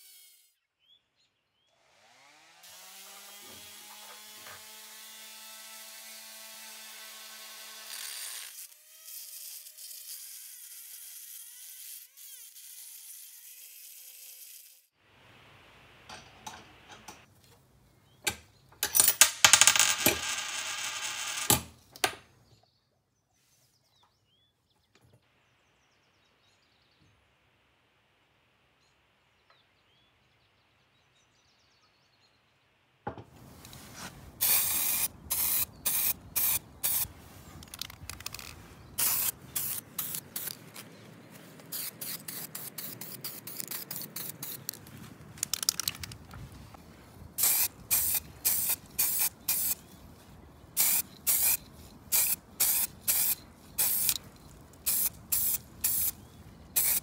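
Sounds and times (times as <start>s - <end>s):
spray paint hissing: 33.7s - 40.8s, 41.6s - 44.8s, 47.4s - 49.8s, 50.8s - 56.2s, 56.8s - 57.0s.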